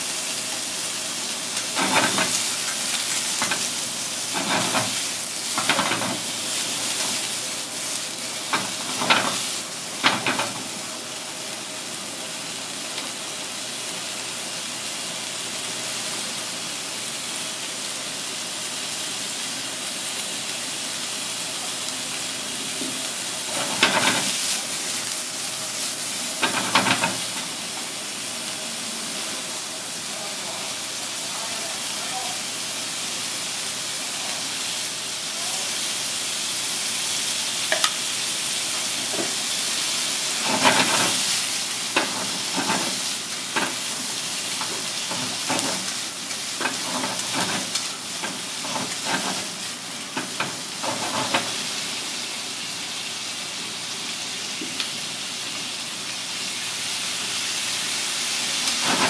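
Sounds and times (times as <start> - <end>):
food sizzling in hot oil: 0.0 - 59.0
kitchen noises: 0.3 - 11.2, 21.6 - 32.4, 33.9 - 55.8, 56.4 - 59.0.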